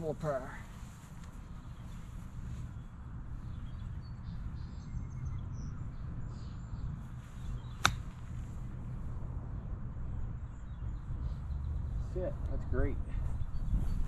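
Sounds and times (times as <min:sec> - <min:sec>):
low wind rumble: 0:00.0 - 0:14.0
golf club striking ball: 0:07.6 - 0:08.4.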